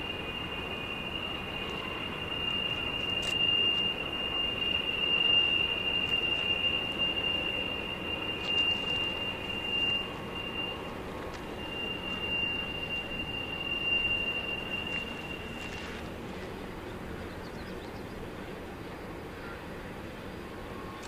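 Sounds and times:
train wheels squealing: 0.0 - 18.0
train running noise: 0.0 - 21.0.

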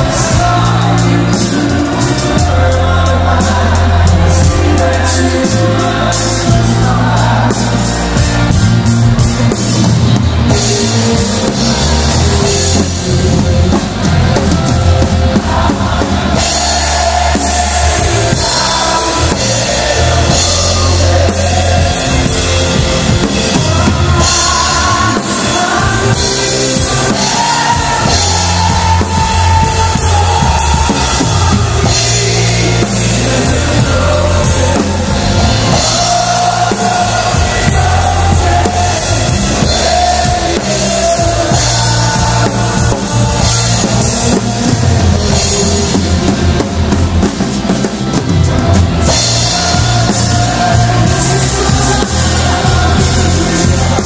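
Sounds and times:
rock music with singing: 0.0 - 54.0.

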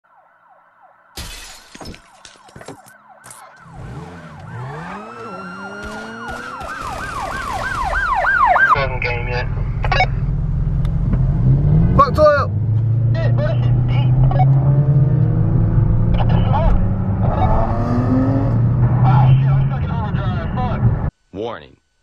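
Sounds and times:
siren wailing: 2.2 - 9.1.

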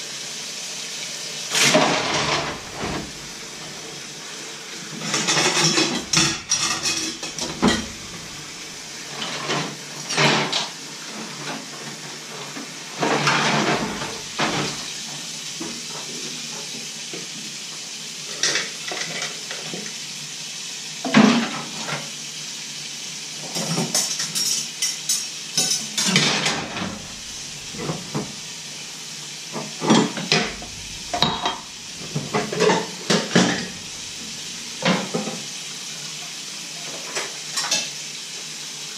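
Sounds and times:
dishes clattering in sink: 1.5 - 3.7, 4.9 - 12.0, 13.0 - 16.7, 18.3 - 19.9, 21.0 - 22.1, 23.4 - 28.5, 29.5 - 35.5, 36.8 - 38.0.

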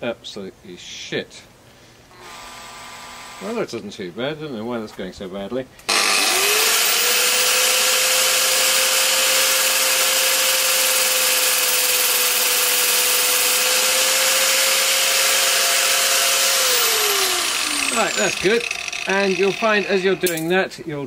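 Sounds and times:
cordless drill spinning: 2.2 - 3.6, 5.9 - 20.4
angle grinder grinding bolt: 5.9 - 20.6.

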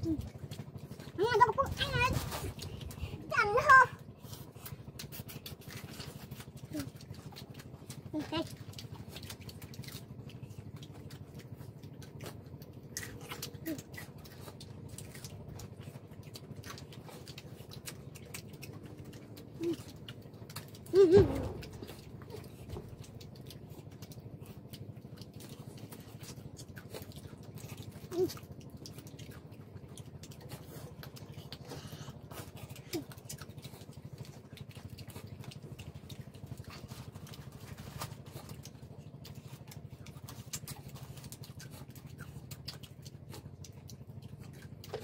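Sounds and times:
chewing: 0.0 - 45.0
steady low hum: 0.0 - 45.0.

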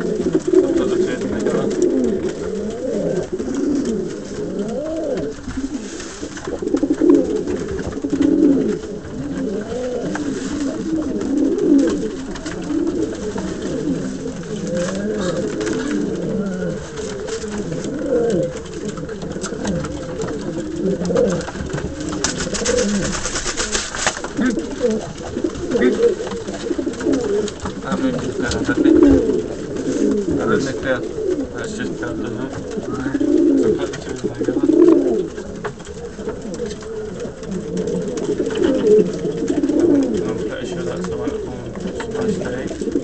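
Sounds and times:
pigeons cooing: 0.0 - 43.0.

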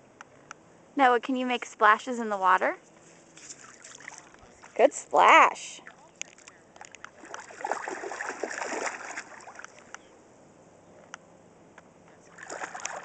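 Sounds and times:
faint water lapping: 2.8 - 10.3, 12.1 - 13.0
water splashing around feet: 3.2 - 5.0, 5.8 - 10.0, 12.2 - 13.0.

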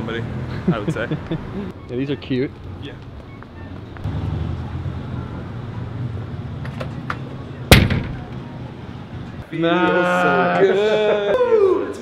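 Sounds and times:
low street rumble: 0.0 - 9.5.

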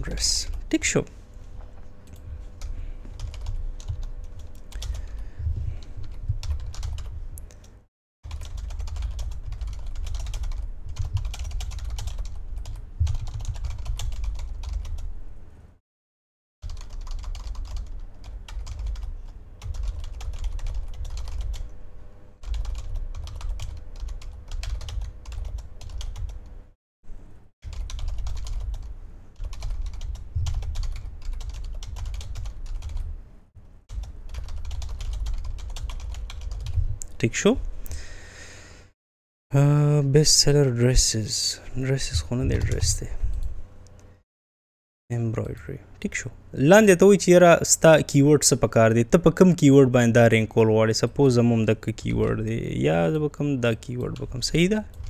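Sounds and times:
typing on computer keyboard: 3.2 - 5.2, 5.8 - 7.1, 8.3 - 15.1, 16.6 - 21.7, 22.4 - 26.4, 27.6 - 33.1, 33.9 - 36.8.

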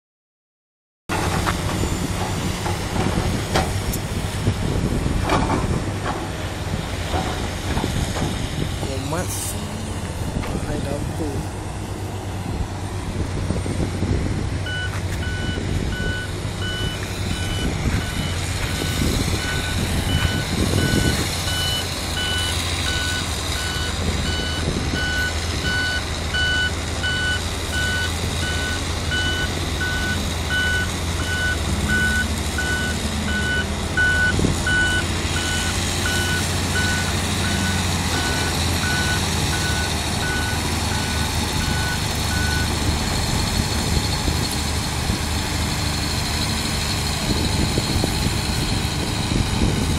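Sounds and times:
low diesel engine rumble: 1.1 - 49.9
truck reversing alarm beeping: 14.6 - 45.0.

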